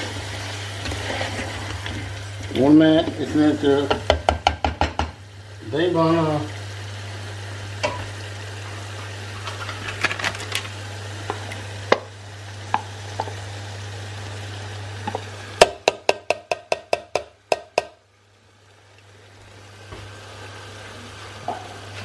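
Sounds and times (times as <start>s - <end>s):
spoon tapping metal pot: 15.1s - 18.0s.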